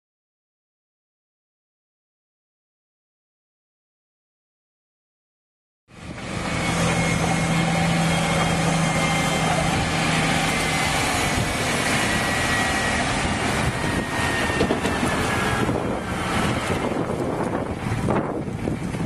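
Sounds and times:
wheel loader engine running: 5.9s - 19.0s
wind on microphone: 10.8s - 19.0s.

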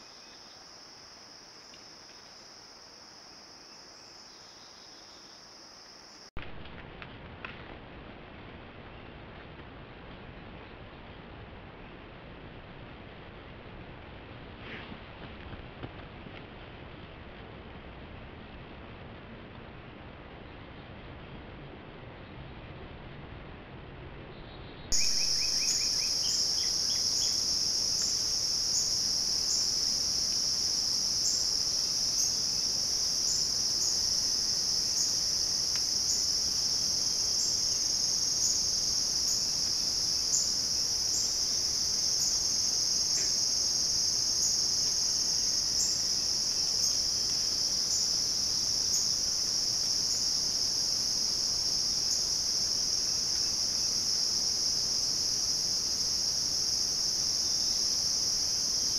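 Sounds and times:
insects chirring: 0.0s - 6.3s, 24.9s - 58.9s
bird chirping: 3.6s - 5.5s, 24.4s - 29.8s.

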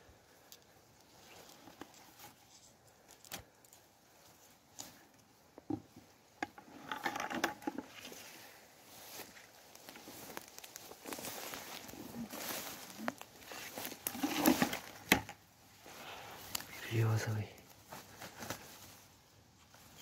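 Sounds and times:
grass and dry leaves rustling: 0.1s - 20.0s.

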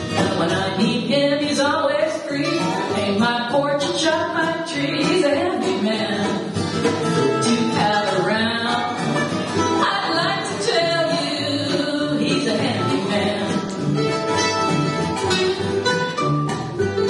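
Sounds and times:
woman singing: 0.0s - 6.6s, 7.2s - 13.7s
acoustic guitars: 0.0s - 17.0s
mandolin: 0.0s - 17.0s
upright bass: 0.0s - 17.0s.

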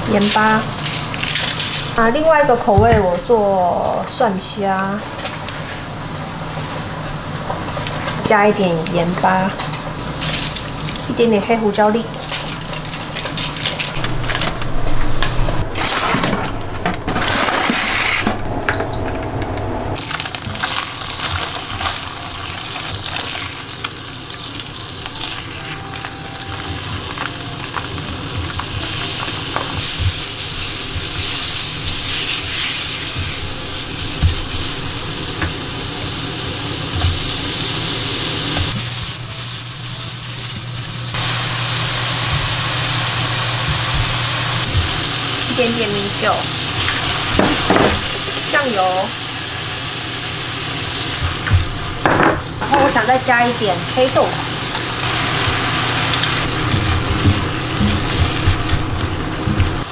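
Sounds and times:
meat sizzling in a pan: 20.0s - 52.1s, 52.8s - 59.9s.

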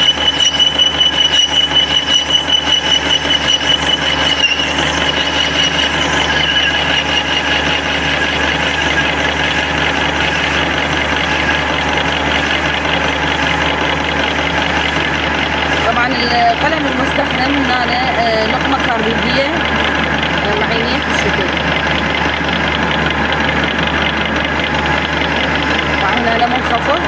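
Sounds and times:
dull lathe cutting noise: 0.0s - 27.0s
lathe cutting steel whine: 0.0s - 27.0s.

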